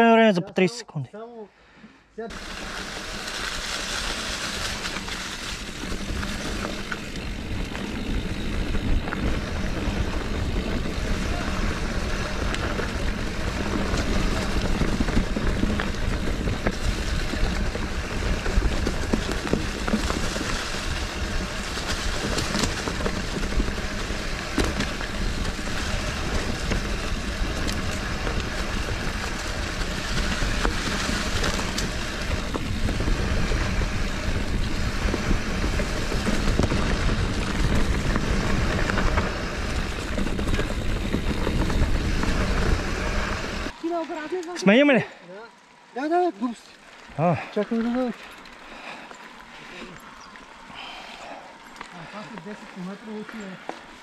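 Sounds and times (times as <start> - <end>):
bike tyres crunching on dirt: 2.3 - 54.0
wind rumble on microphone: 2.4 - 43.8
bike knocks and rattles: 4.4 - 43.7.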